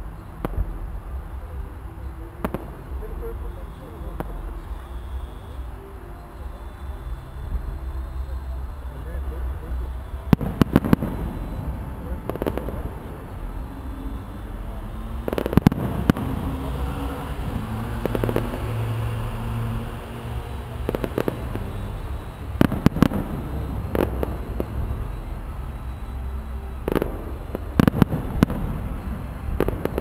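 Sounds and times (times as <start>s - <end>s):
fireworks shells bursting: 6.4s - 30.0s.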